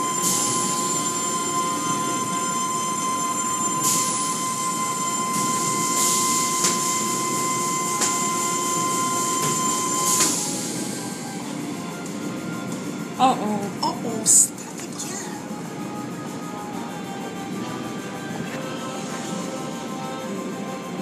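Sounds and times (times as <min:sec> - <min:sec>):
car wash machinery noise: 0:00.0 - 0:21.0
steady high whine: 0:00.0 - 0:21.0.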